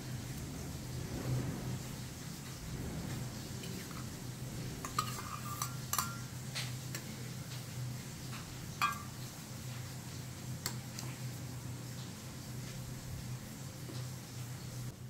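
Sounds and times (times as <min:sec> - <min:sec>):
spoon clinking against bowl: 0:04.9 - 0:06.3, 0:08.8 - 0:09.2.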